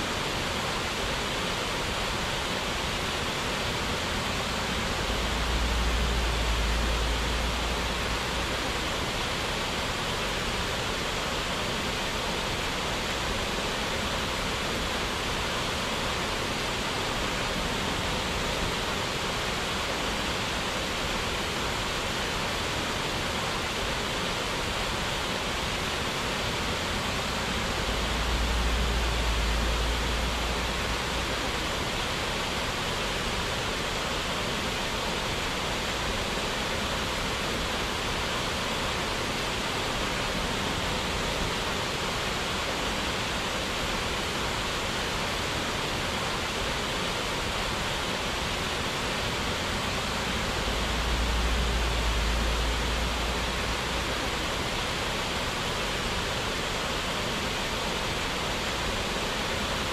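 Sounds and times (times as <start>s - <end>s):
waterfall rushing: 0.0s - 59.9s
low rumble: 27.4s - 31.8s.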